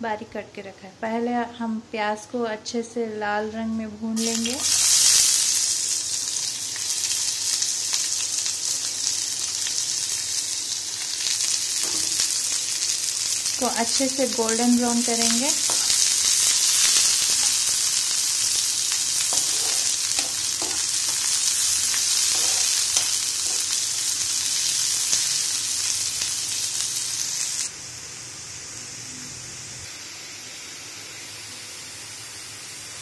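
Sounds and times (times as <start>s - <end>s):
onions sizzling in oil: 4.2s - 33.0s
spatula scraping pan: 19.2s - 23.8s.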